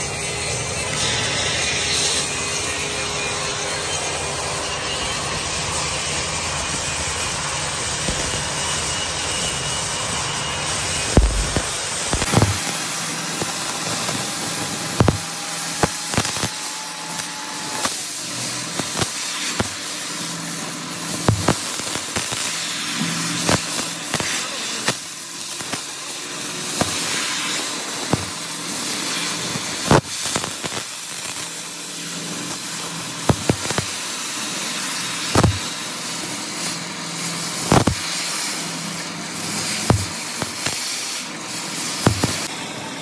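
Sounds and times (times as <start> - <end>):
welding torch hissing: 0.0 - 43.0
sharp pops and crackles: 8.0 - 9.5, 11.0 - 20.0, 21.1 - 26.1, 26.7 - 31.7, 32.3 - 34.2, 35.1 - 35.8, 37.5 - 38.4, 39.4 - 42.5.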